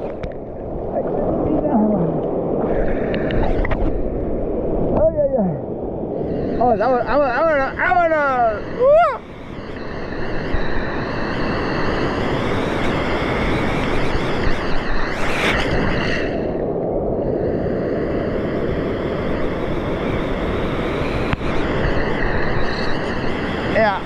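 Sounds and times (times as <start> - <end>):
surf washing around rocks: 0.0 - 24.0
wave breaking: 0.0 - 24.0
wind on microphone: 0.0 - 24.0.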